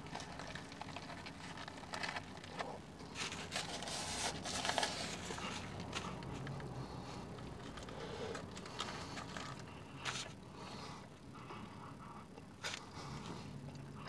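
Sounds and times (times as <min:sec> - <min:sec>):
foil wrapper crinkling: 0:00.0 - 0:10.4
quiet chewing: 0:00.0 - 0:14.0.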